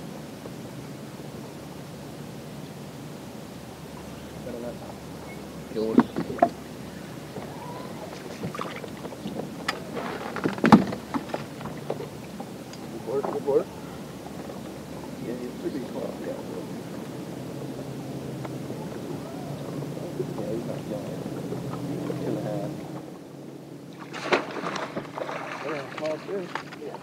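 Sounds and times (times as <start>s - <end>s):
water noise around boat: 0.0s - 27.0s
wind: 0.0s - 27.0s
knocks on boat: 5.8s - 6.6s, 7.3s - 13.6s.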